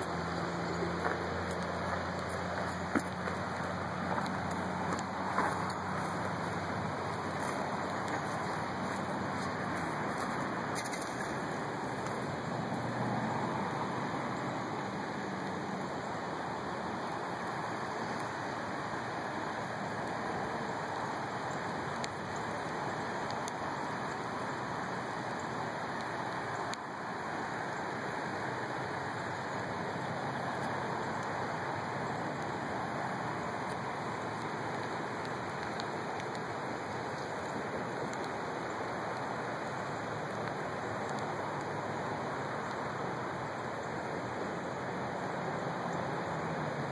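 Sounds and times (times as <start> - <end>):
river rushing: 0.0 - 46.9
faint clicks: 33.7 - 41.7.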